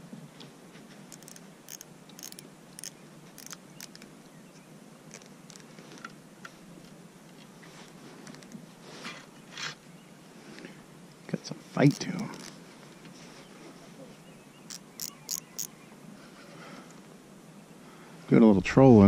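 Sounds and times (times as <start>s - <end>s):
fishing reel clicking: 1.1s - 4.0s, 11.9s - 12.2s, 14.7s - 15.7s.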